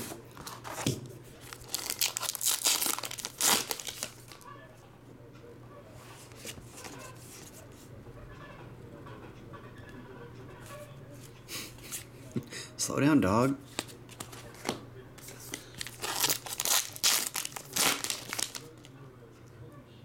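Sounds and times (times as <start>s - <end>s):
cards being handled: 0.0s - 4.4s, 6.2s - 7.9s, 13.7s - 18.9s
foil wrapper tearing: 1.4s - 4.4s, 15.6s - 18.9s.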